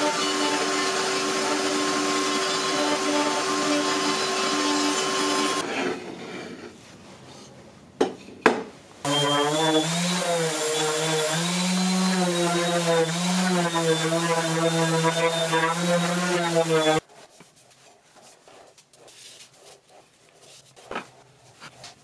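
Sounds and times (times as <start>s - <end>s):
electric orbit sander humming: 0.0s - 5.6s, 9.1s - 17.0s
router cutting wood: 0.0s - 5.7s, 9.0s - 17.0s.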